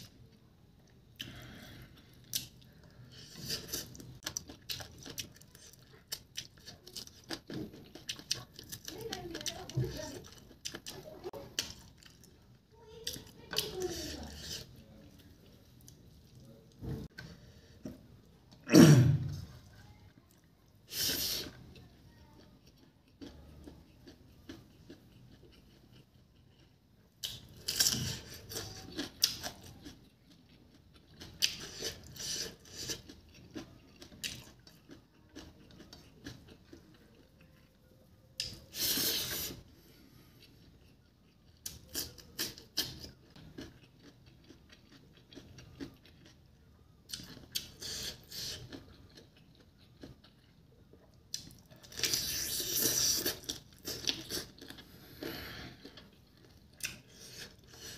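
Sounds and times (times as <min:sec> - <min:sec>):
person chewing and biting: 0:01.2 - 0:08.9, 0:24.0 - 0:37.0, 0:40.8 - 0:46.5, 0:47.1 - 0:57.9.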